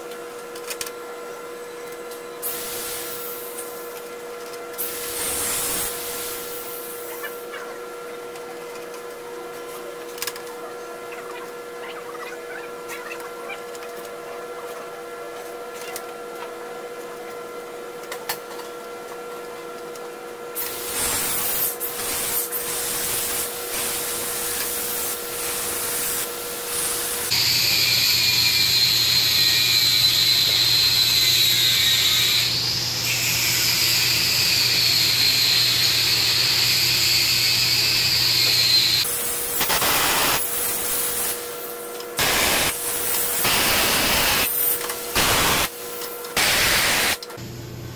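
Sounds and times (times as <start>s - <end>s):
compressed air tool hissing: 2.4s - 3.6s, 4.8s - 7.2s, 20.6s - 45.8s, 46.4s - 47.2s.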